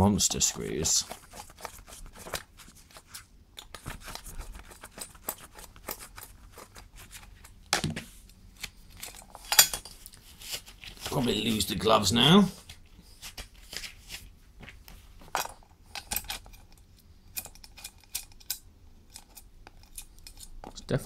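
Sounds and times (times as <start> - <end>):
screwdriver clicks and scrapes: 15.9 - 20.6.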